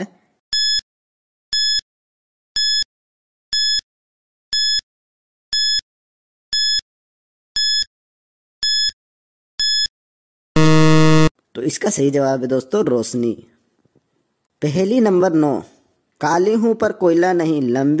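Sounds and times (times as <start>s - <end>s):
short high electronic beeps: 10.6s - 11.3s.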